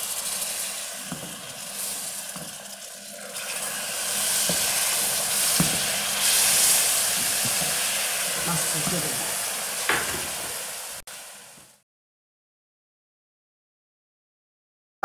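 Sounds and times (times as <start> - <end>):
juice pouring: 0.0 - 8.4
sugar syrup sizzling and bubbling: 0.0 - 11.8
spoon knocking against pot: 5.6 - 5.9, 9.9 - 10.4.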